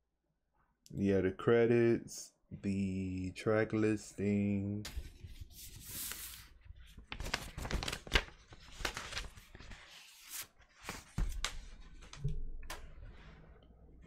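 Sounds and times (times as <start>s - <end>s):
paper sleeve rustling: 4.9s - 12.1s.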